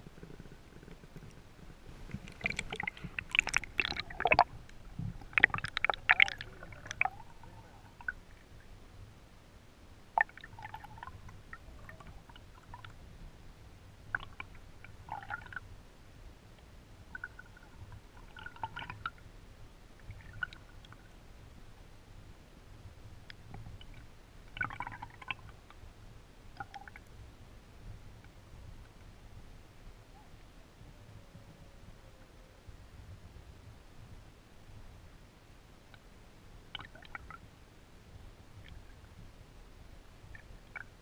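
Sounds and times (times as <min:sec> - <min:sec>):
water splashing and bubbling: 0:00.2 - 0:08.7, 0:10.1 - 0:13.0, 0:14.1 - 0:15.6, 0:17.1 - 0:19.2, 0:20.0 - 0:21.1, 0:23.7 - 0:25.6, 0:26.6 - 0:27.1, 0:36.7 - 0:37.4, 0:40.3 - 0:41.0
muffled underwater gurgling: 0:01.9 - 0:08.6.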